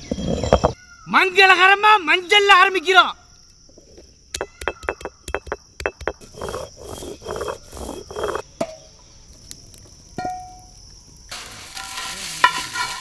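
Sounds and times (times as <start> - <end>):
stone roller grinding strokes: 0.0 - 0.8, 4.4 - 8.4, 11.4 - 13.0
insects chirring: 0.0 - 13.0
stone-on-stone knocks: 4.4 - 6.2.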